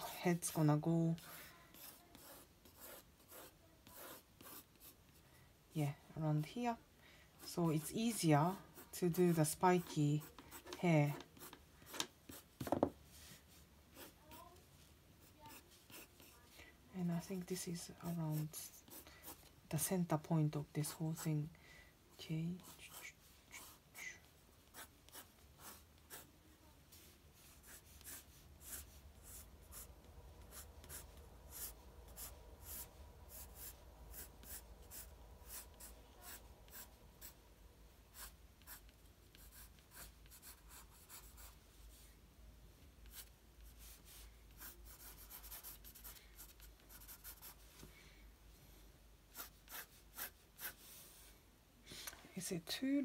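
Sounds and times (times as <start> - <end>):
pencil scratching on paper: 0.0 - 5.0, 7.4 - 12.8, 15.2 - 16.5, 18.0 - 19.5, 22.6 - 23.8, 24.6 - 26.3, 26.9 - 37.4, 38.1 - 41.6, 43.0 - 47.6, 49.3 - 51.1.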